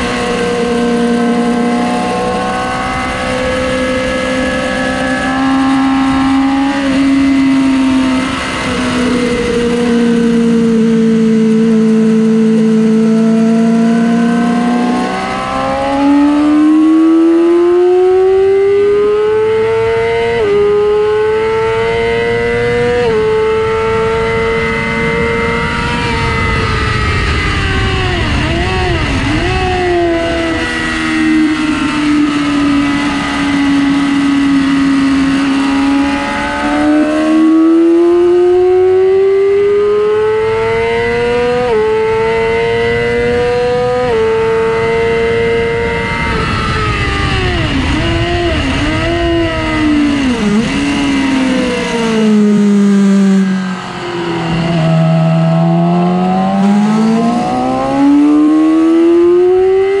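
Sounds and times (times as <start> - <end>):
sport bike engine revving high: 0.0 - 60.0
wind rush: 22.3 - 36.4, 43.3 - 59.7.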